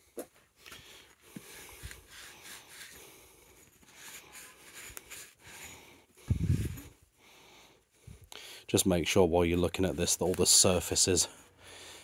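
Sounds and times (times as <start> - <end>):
cloth rubbing on metal: 1.5 - 7.0.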